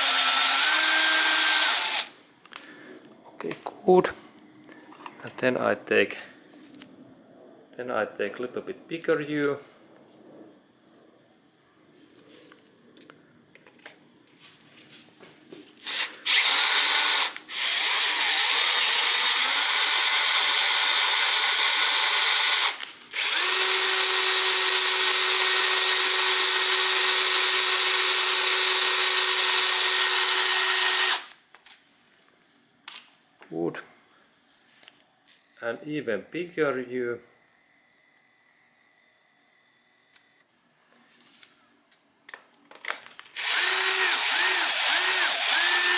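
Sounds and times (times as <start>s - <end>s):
electric drill whining: 0.0s - 2.2s, 15.8s - 31.4s, 43.3s - 45.9s.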